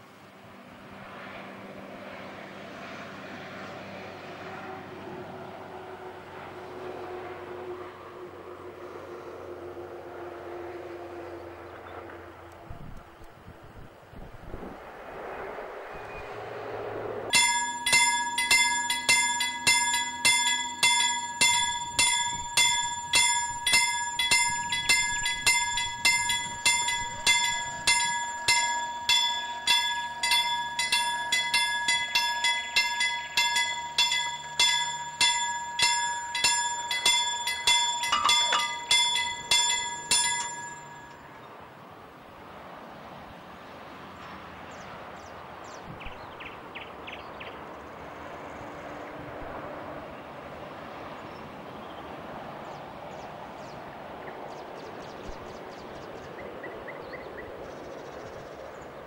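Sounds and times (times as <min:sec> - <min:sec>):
level crossing bell ringing: 0:17.3 - 0:41.4.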